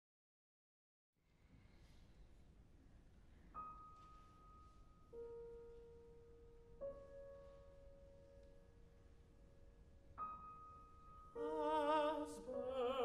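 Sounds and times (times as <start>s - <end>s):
piano notes ringing: 3.3s - 13.0s.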